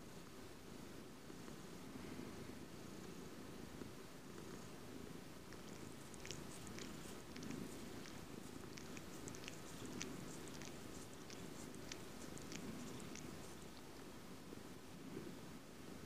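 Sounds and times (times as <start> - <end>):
cat purring: 3.8 - 14.7.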